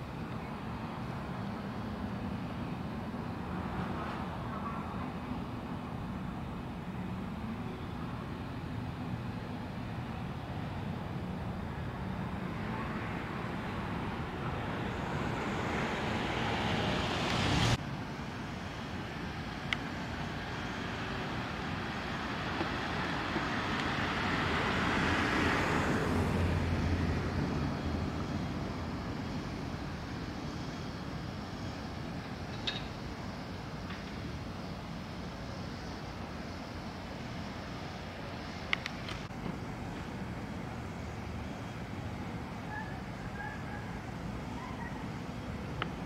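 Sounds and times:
distant vehicles passing: 0.0s - 46.0s.

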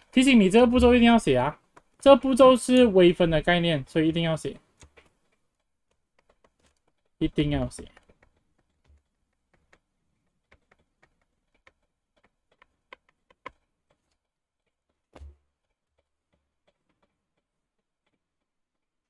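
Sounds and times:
stylus tapping on tablet screen: 4.6s - 14.2s.

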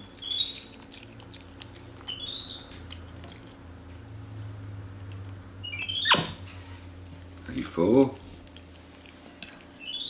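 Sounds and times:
monkey chewing with lip smacks: 0.0s - 3.7s
monkey high rising chirps: 0.2s - 0.8s, 2.1s - 2.7s, 5.6s - 6.4s.

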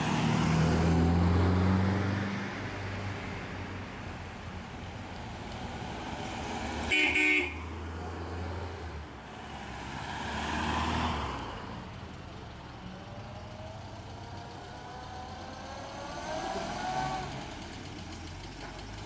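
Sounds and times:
cars driving past: 0.0s - 19.0s
car horn toot: 6.9s - 7.7s.

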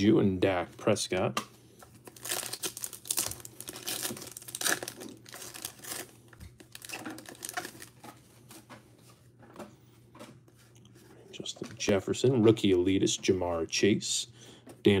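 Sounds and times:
foil pack crinkling: 1.9s - 8.6s.

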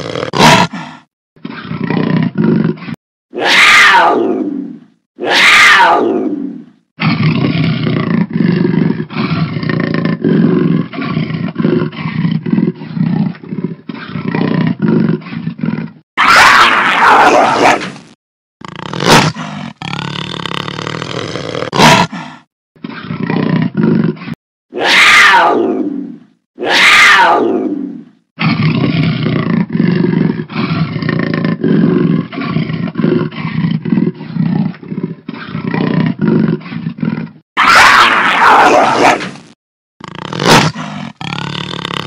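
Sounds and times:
jaguar roaring: 18.6s - 39.4s, 40.0s - 42.0s.

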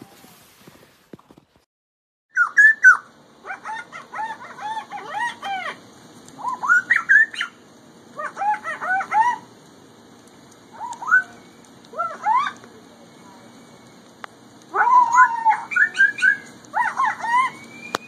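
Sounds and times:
kookaburra calling: 2.3s - 5.8s, 6.4s - 9.5s, 14.7s - 17.7s.

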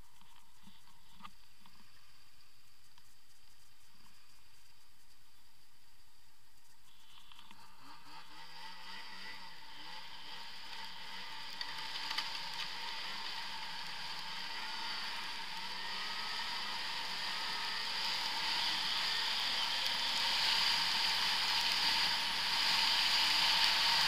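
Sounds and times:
snowmobile engine running: 7.6s - 24.0s.

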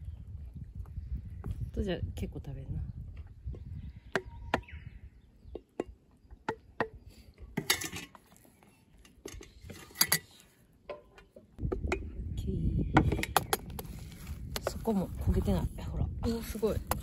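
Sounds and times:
paddle scraping metal tin: 7.6s - 8.4s, 9.0s - 11.1s.

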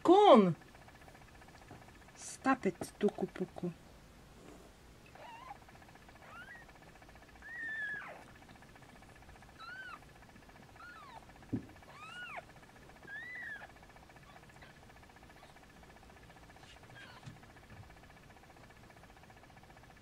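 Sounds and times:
kitten mewing: 5.1s - 6.7s, 7.4s - 8.4s, 9.5s - 10.0s, 10.8s - 15.6s, 16.6s - 17.4s
soft thump: 11.5s - 11.8s.

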